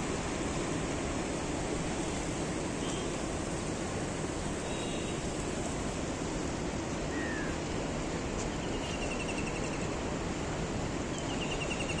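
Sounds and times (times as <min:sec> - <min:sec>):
river rushing: 0:00.0 - 0:12.0.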